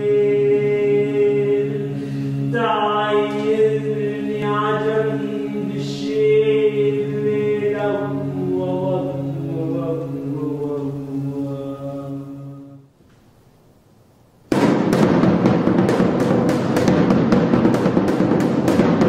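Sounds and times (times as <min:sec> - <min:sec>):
bright voice singing: 0:00.0 - 0:12.9
low voices chanting a drone: 0:00.0 - 0:12.9.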